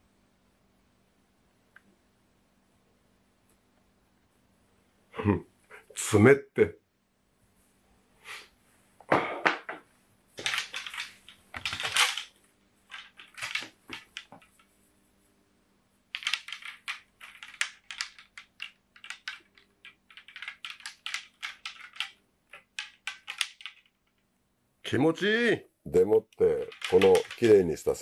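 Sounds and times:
quick irregular clicks and taps: 0:16.1 - 0:24.2.

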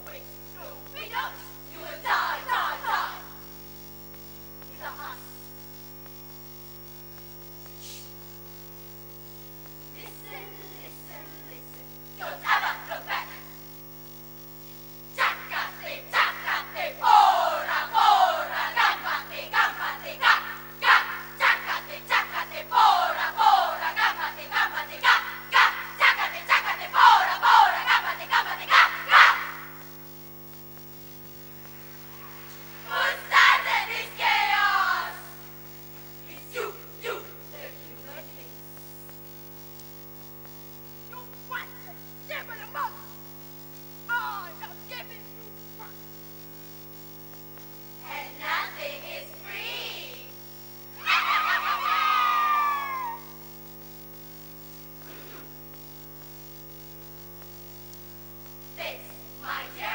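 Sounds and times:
drawn-out sung tones: 0:00.0 - 0:03.4, 0:12.2 - 0:13.6, 0:15.1 - 0:30.0, 0:31.9 - 0:35.6, 0:48.0 - 0:53.4, 0:58.7 - 0:59.9
electrical mains hum: 0:00.0 - 0:59.9
girls calling out in unison: 0:15.2 - 0:29.8, 0:51.0 - 0:53.3
faint voice: 0:55.0 - 0:55.6.

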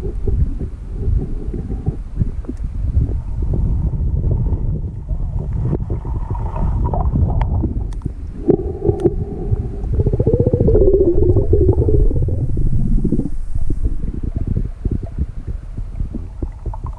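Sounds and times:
underwater river rumble: 0:00.0 - 0:16.9
pulsing humming drone: 0:07.4 - 0:15.0.

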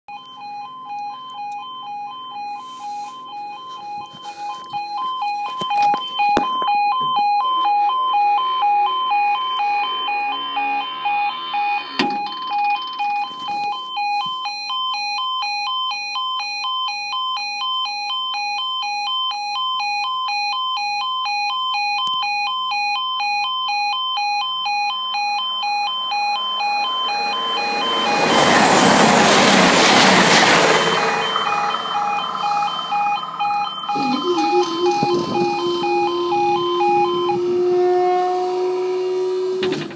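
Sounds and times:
two-tone crossing alarm pulsing: 0:00.1 - 0:39.9
train passing: 0:25.8 - 0:39.8.

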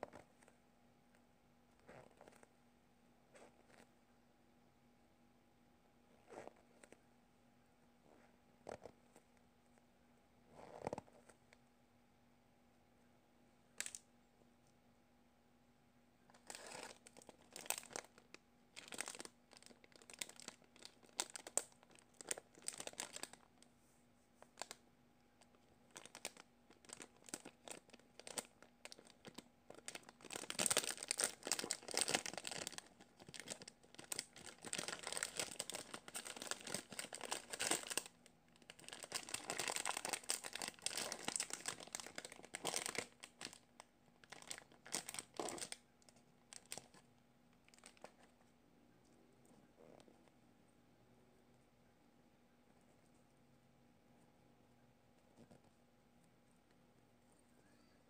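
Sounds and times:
plastic bag crinkling: 0:16.3 - 0:23.6, 0:24.4 - 0:24.8, 0:25.4 - 0:45.8, 0:46.5 - 0:47.0, 0:47.7 - 0:48.2.

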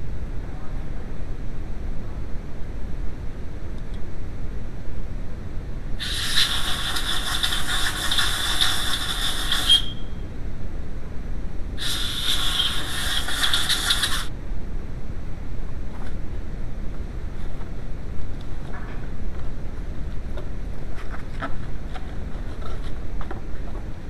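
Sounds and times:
hissing with squeaky tone: 0:06.0 - 0:10.2, 0:11.8 - 0:14.3.

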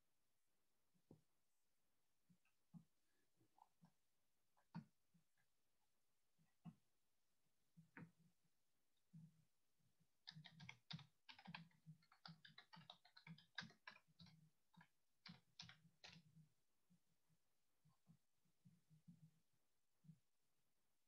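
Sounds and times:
typing on keyboard: 0:10.2 - 0:16.3.

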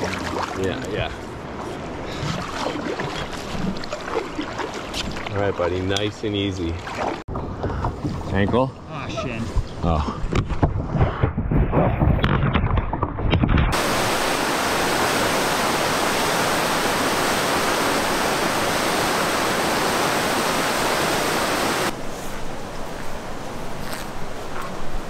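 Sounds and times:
rushing whitewater roar: 0:13.7 - 0:22.0.

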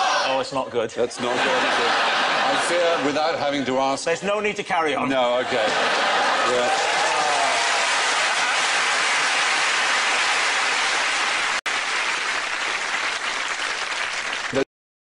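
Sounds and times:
audience applauding: 0:05.9 - 0:14.7.

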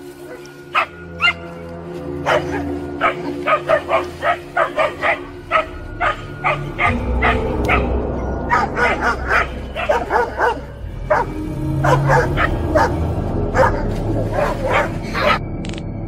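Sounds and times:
dog barking: 0:00.8 - 0:01.4, 0:02.2 - 0:07.9, 0:08.5 - 0:13.0, 0:13.6 - 0:15.4.

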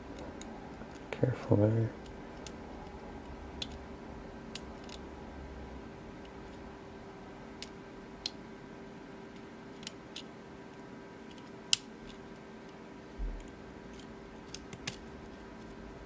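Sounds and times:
lock pick metallic clicks: 0:13.4 - 0:15.0.

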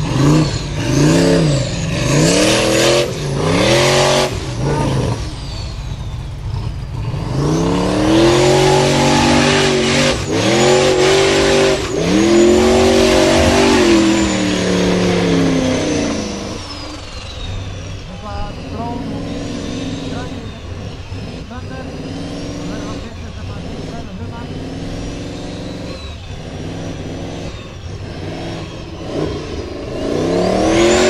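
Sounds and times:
buggy engine revving hard: 0:00.0 - 0:31.0
thin high whine: 0:08.4 - 0:21.1.

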